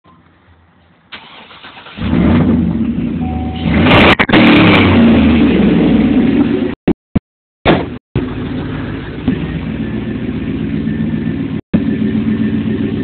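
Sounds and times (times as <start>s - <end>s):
engine cranking: 1.1s - 2.2s
pickup engine running loudly: 8.2s - 13.0s.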